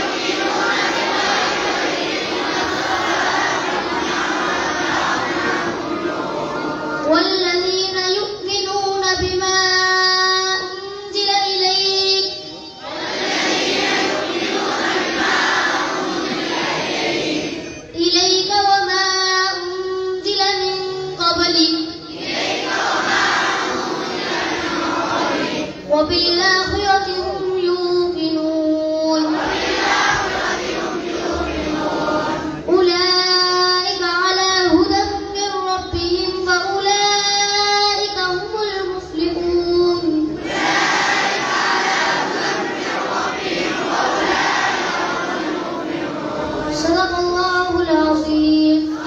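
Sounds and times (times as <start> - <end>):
many voices chanting: 0.0 - 7.1, 12.8 - 17.7, 22.1 - 25.9, 29.3 - 32.7, 40.4 - 46.9
children singing in unison: 0.0 - 9.6, 10.6 - 19.6, 20.2 - 35.0, 35.7 - 49.0.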